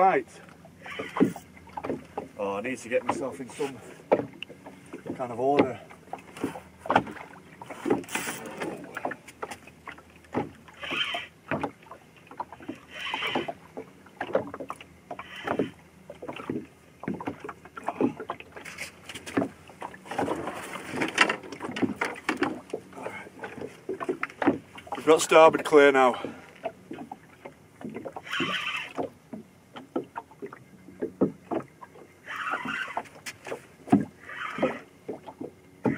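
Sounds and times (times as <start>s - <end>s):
fishing gear knocking and clattering: 0.8s - 13.5s, 14.2s - 27.2s.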